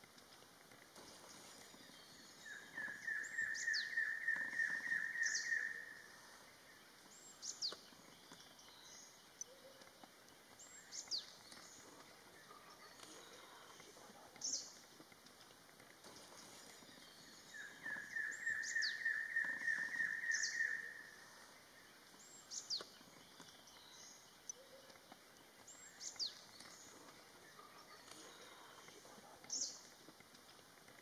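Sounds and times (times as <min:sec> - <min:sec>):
faint outdoor background: 0:00.0 - 0:31.0
birds chirping rapidly: 0:00.3 - 0:30.8
high downward-sliding bird whistles: 0:17.8 - 0:21.0.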